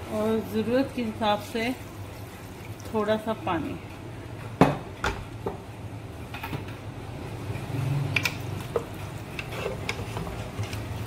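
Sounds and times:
metal spatula scraping pot: 0:09.2 - 0:11.0.

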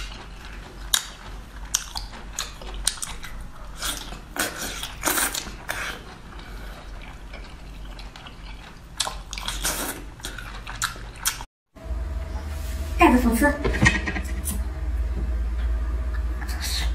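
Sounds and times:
chewing: 0:00.0 - 0:11.5
wet slurping: 0:01.7 - 0:11.4.

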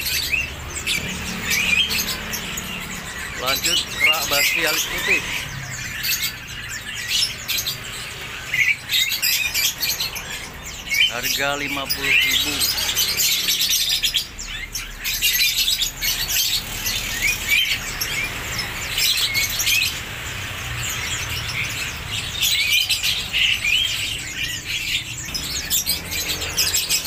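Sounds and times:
songbirds chirping and twittering: 0:00.0 - 0:27.0.

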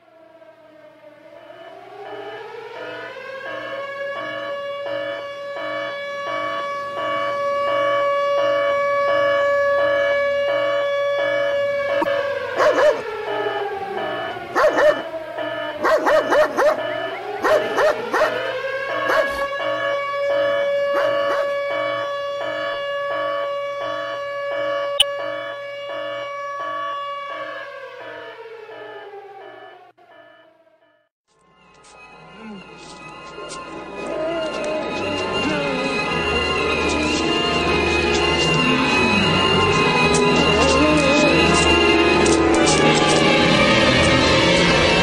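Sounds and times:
pulsing siren wailing: 0:00.0 - 0:31.0, 0:31.6 - 0:45.0
dog barking and snarling: 0:12.6 - 0:13.1, 0:14.5 - 0:15.0, 0:15.8 - 0:18.4, 0:19.0 - 0:19.5, 0:20.9 - 0:21.5, 0:39.7 - 0:41.8.

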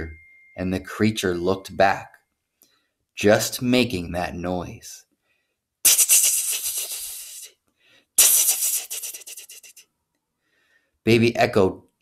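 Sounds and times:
person making creature noise: 0:05.9 - 0:07.6, 0:08.2 - 0:09.8.

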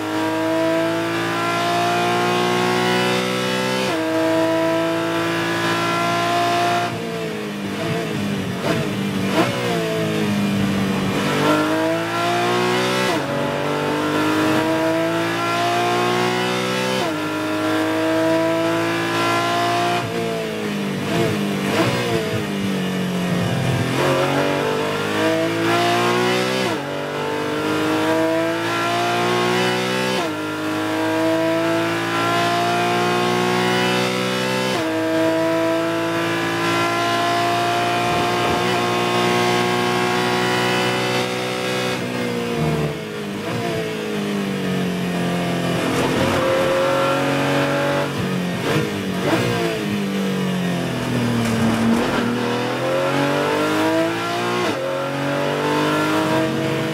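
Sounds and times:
race car engine at full throttle: 0:00.0 - 0:56.9
throttle-blipped downshifts: 0:45.0 - 0:50.0.

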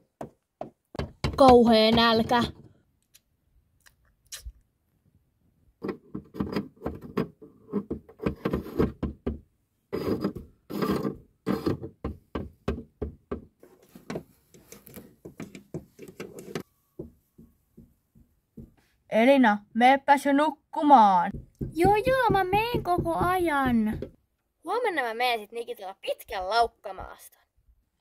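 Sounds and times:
plastic toy knocking and tapping: 0:00.2 - 0:02.6, 0:11.8 - 0:13.5, 0:21.3 - 0:24.2
plastic toy scraping: 0:05.8 - 0:09.0, 0:09.9 - 0:12.0.

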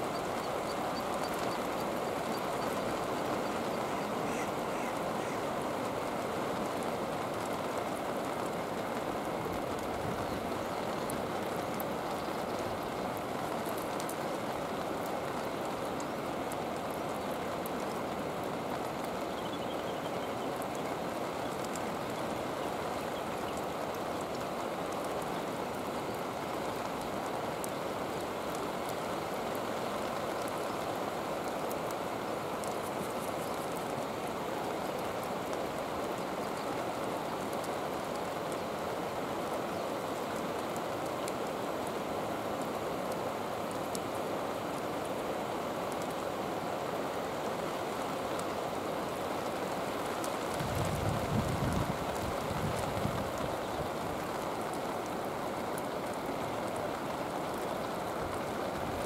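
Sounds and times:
steady rainfall: 0:00.0 - 0:59.0.

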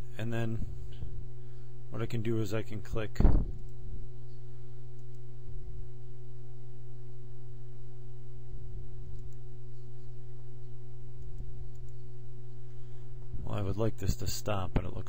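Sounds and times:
low electrical hum: 0:00.0 - 0:15.0
faint mouse clicks: 0:04.9 - 0:05.2, 0:09.1 - 0:09.4, 0:11.2 - 0:12.0.

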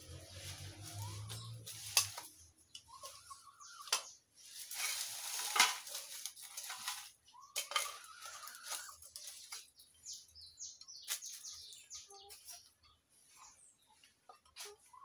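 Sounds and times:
scraping: 0:00.0 - 0:09.7
hen clucking: 0:00.1 - 0:04.3, 0:07.1 - 0:09.8, 0:10.8 - 0:15.0
objects knocking and clattering: 0:04.8 - 0:08.2.

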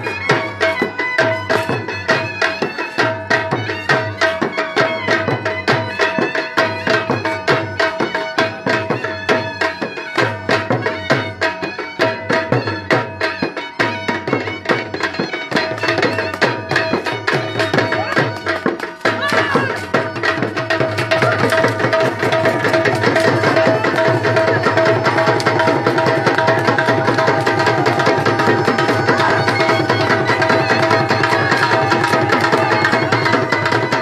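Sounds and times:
drums beating dance rhythm: 0:00.0 - 0:34.0
held melody line: 0:00.0 - 0:34.0.

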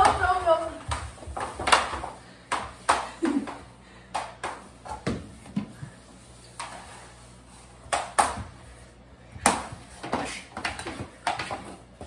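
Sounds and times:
hockey stick clacking on wooden floor: 0:00.0 - 0:05.8, 0:07.8 - 0:08.5, 0:09.4 - 0:11.8
stick scraping floor: 0:00.0 - 0:12.0.

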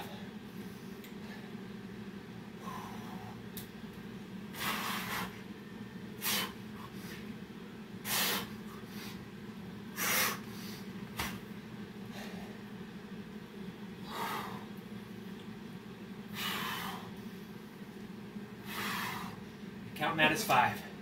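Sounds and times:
steady low hum: 0:00.0 - 0:21.0
man exhaling hard: 0:16.3 - 0:17.1, 0:18.6 - 0:19.4.

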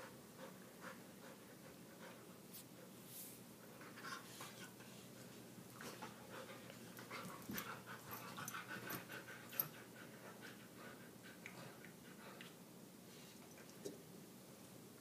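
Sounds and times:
dogs panting: 0:05.8 - 0:12.6.

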